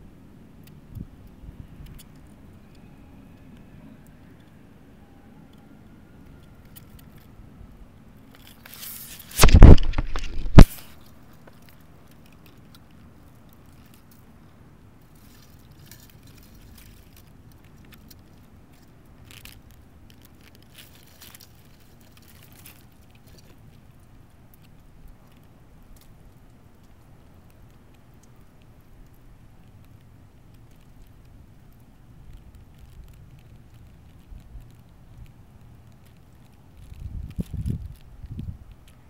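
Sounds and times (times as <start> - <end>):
microphone handling rustle: 8.5 - 11.1, 36.8 - 38.9.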